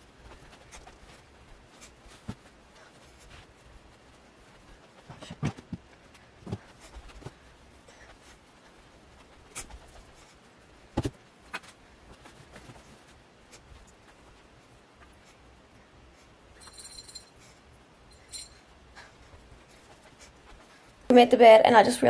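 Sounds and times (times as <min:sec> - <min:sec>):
pillows and bedding thumping: 0:10.9 - 0:11.2.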